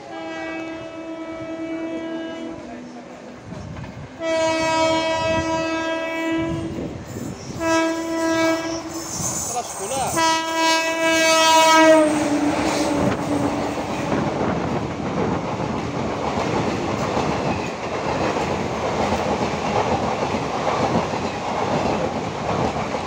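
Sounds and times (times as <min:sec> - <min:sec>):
train coaches rushing past: 0:00.0 - 0:23.0
locomotive air horn blasts: 0:00.1 - 0:02.7, 0:04.2 - 0:06.8, 0:07.6 - 0:09.5, 0:10.1 - 0:13.8.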